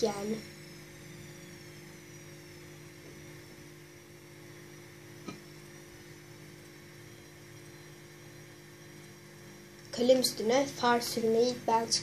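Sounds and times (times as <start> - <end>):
faint high whine: 0.0 - 12.0
low electrical hum: 0.0 - 12.0.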